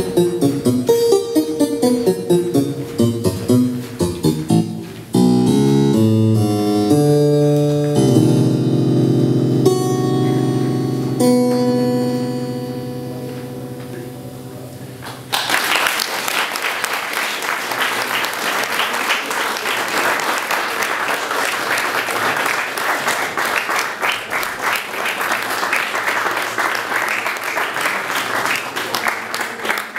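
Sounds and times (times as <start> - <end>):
music: 0.0 - 15.7
audience applauding: 15.0 - 29.9.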